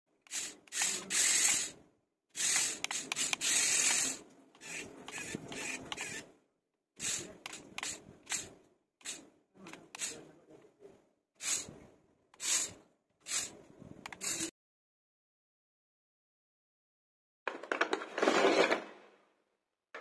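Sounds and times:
toy car motors whirring: 0.2s - 6.3s, 7.0s - 10.2s, 11.4s - 11.7s, 12.4s - 14.5s.

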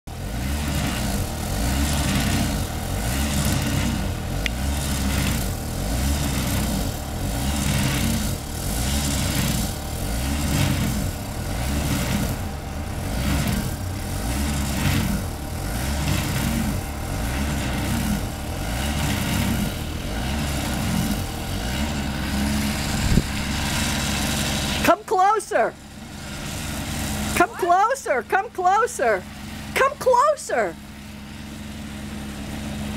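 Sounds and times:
snowblower engine running: 0.1s - 32.9s
rushing hiss of snow: 22.1s - 24.9s.

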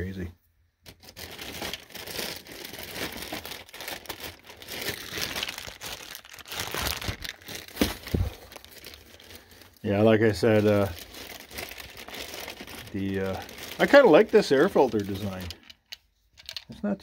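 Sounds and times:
plastic covers rustling and clicking: 0.8s - 16.6s
plastic covers knocking: 0.9s - 9.0s.

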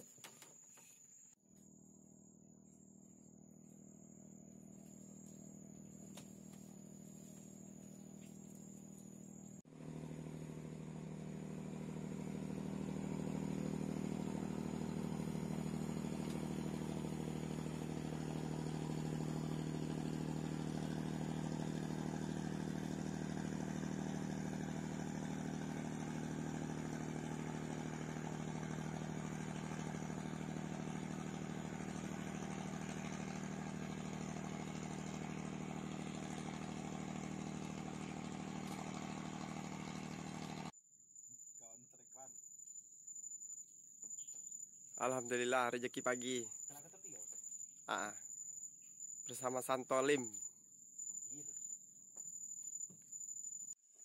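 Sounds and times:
boat engine droning: 8.8s - 40.7s.

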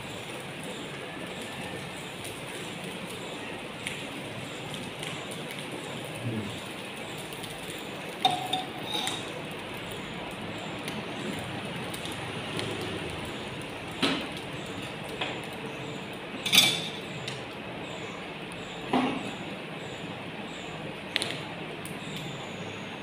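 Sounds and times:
metal spoon clinking on vessels: 8.2s - 9.3s, 16.4s - 17.0s.

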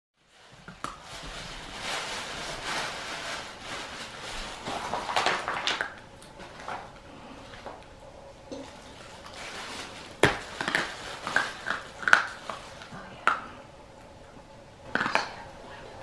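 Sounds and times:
dog crunching a chew: 4.0s - 7.9s, 8.6s - 13.5s, 14.9s - 15.4s.

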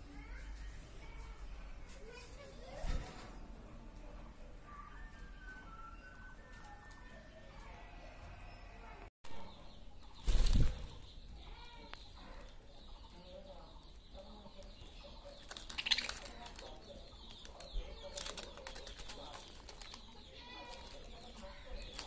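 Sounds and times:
wing flaps: 10.2s - 11.0s
budgie chatter: 11.3s - 22.0s.

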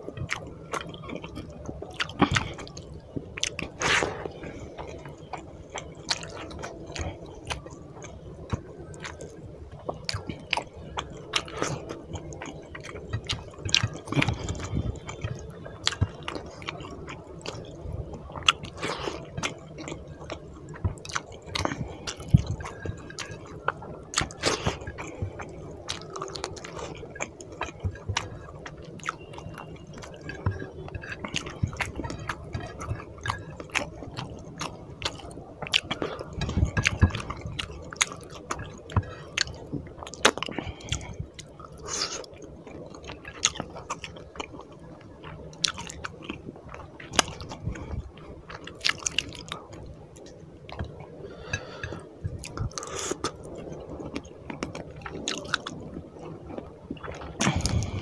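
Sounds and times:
wet chewing: 0.1s - 58.0s.

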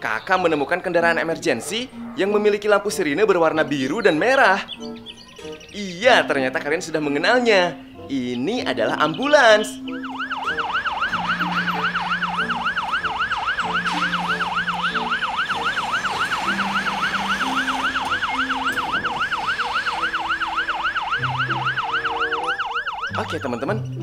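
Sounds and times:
ambulance siren yelping: 3.4s - 5.8s, 8.8s - 24.0s.

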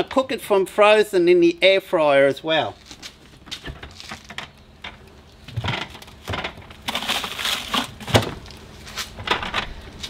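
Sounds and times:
packaging crackling and knocking: 3.4s - 8.6s.

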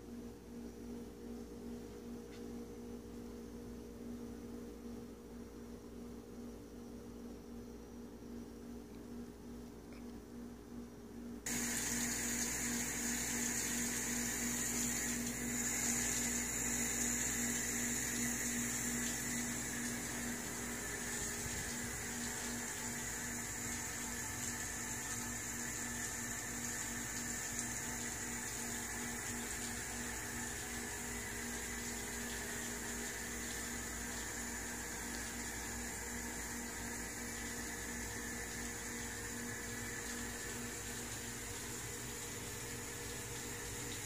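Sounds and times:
steady low hum: 0.0s - 44.0s
water trickling and splashing: 11.5s - 44.0s.

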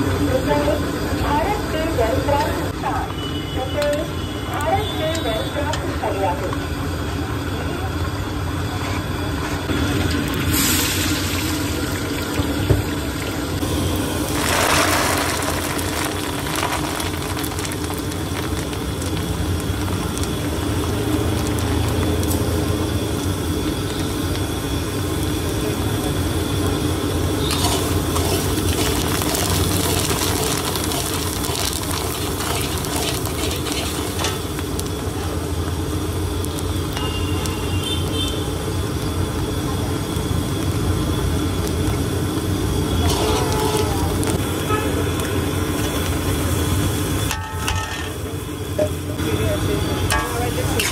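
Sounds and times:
liquid bubbling vigorously: 9.7s - 37.7s.

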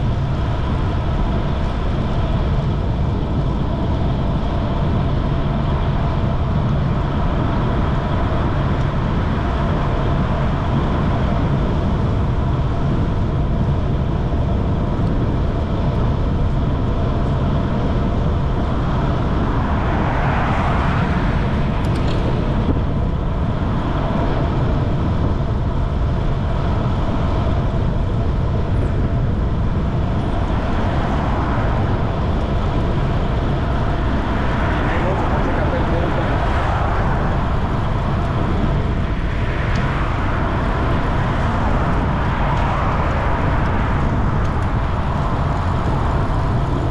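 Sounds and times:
wind rush: 0.0s - 46.9s
passing car tyre noise: 15.6s - 46.9s
bicycle tyre noise: 29.8s - 46.9s.

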